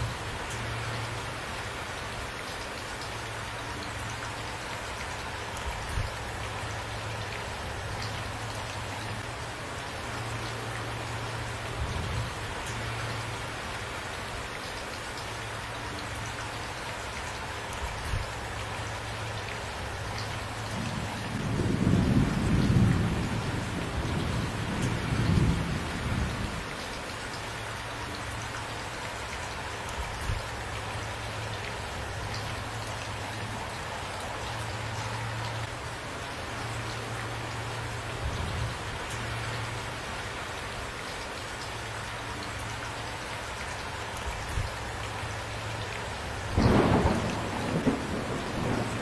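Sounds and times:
steady rain falling: 0:00.0 - 0:49.0
low rumble of thunder: 0:20.4 - 0:26.7, 0:46.5 - 0:49.0.

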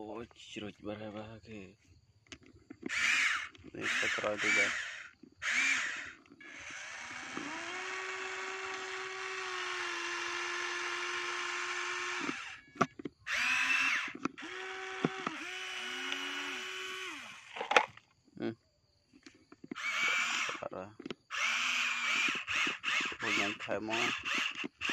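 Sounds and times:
electric gear motors whining: 0:02.8 - 0:18.0, 0:19.7 - 0:24.9
sharp clicks: 0:19.2 - 0:24.9.

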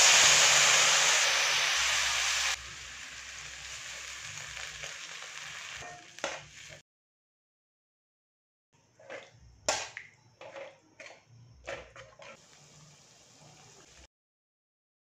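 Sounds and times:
simmering sauce hissing: 0:00.0 - 0:06.8, 0:12.4 - 0:14.1.

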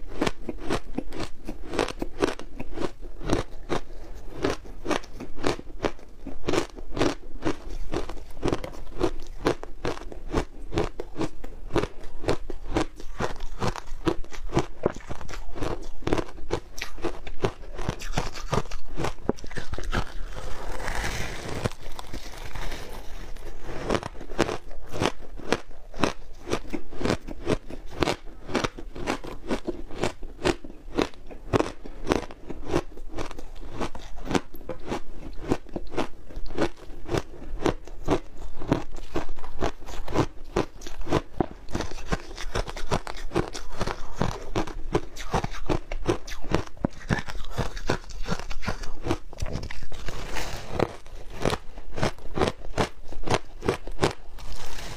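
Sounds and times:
crunching shaved ice: 0:00.1 - 0:54.9.

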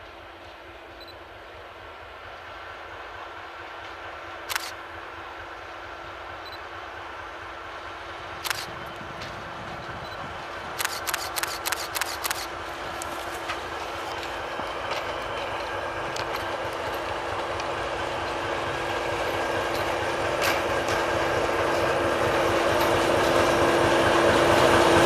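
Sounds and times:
diesel locomotive engine drone: 0:00.0 - 0:25.0
sharp metallic clicks: 0:04.5 - 0:04.8, 0:08.4 - 0:08.7, 0:10.8 - 0:13.1.

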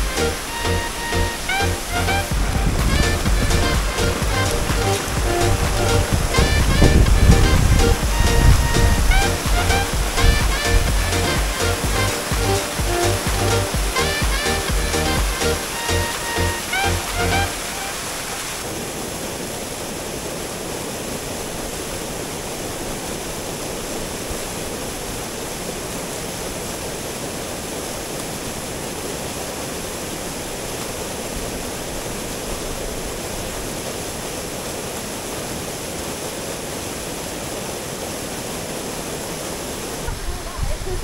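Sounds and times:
background music: 0:00.0 - 0:18.1
waterfall roaring: 0:00.0 - 0:41.0.

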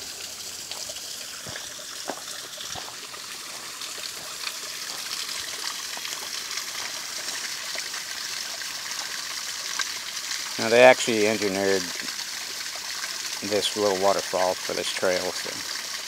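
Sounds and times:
small waterfall splashing over rocks: 0:00.0 - 0:16.0
footsteps on dirt trail: 0:00.8 - 0:05.1.

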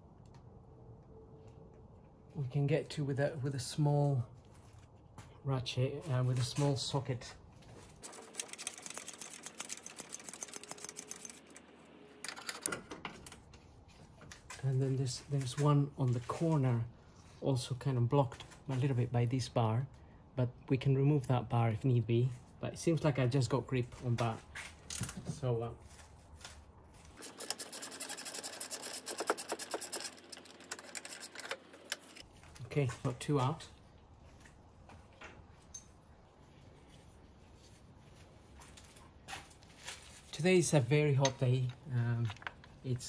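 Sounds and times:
socket ratchet clicking rapidly: 0:08.2 - 0:11.5, 0:27.2 - 0:32.2.

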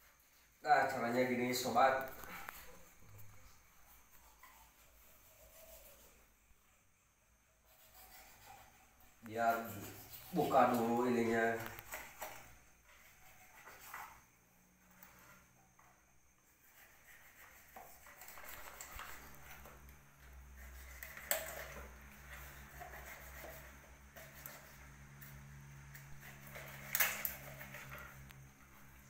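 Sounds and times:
knife scraping a shell: 0:01.6 - 0:06.2, 0:07.6 - 0:14.3, 0:16.6 - 0:28.4.

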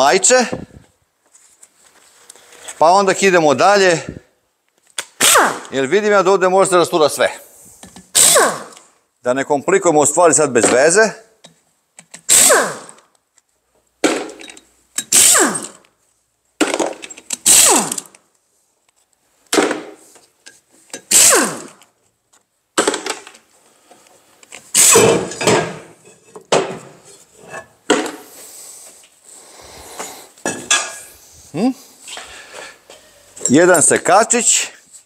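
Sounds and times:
impact wrench rattling: 0:14.0 - 0:15.8, 0:16.6 - 0:18.2, 0:20.9 - 0:21.8, 0:24.7 - 0:25.9.

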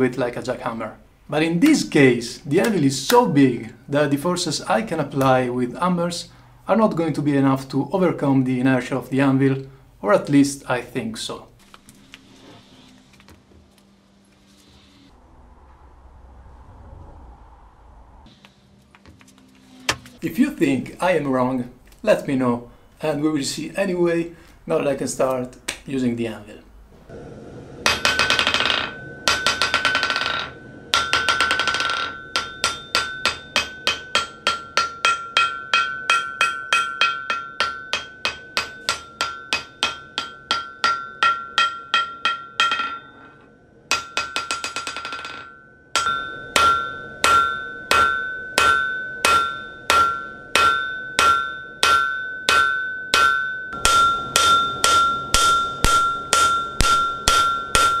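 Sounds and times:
hammer ringing on anvil: 0:27.9 - 0:58.0.

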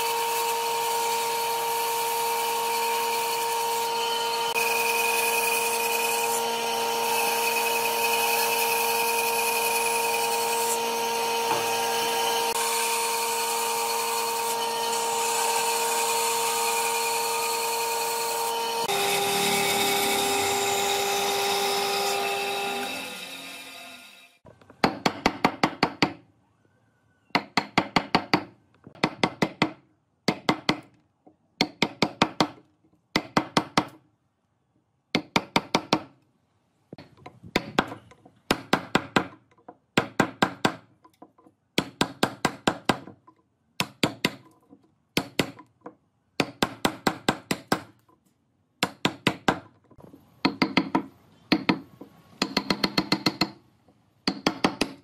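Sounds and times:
hammer striking chisel into wood: 0:11.5 - 0:11.8, 0:24.8 - 0:26.2, 0:27.4 - 0:31.0, 0:31.6 - 0:34.0, 0:35.1 - 0:36.2, 0:37.5 - 0:39.4, 0:40.0 - 0:41.2, 0:41.8 - 0:43.2, 0:43.8 - 0:44.5, 0:45.2 - 0:45.7, 0:46.4 - 0:48.0, 0:48.8 - 0:49.8, 0:50.4 - 0:53.6, 0:54.2 - 0:55.0.

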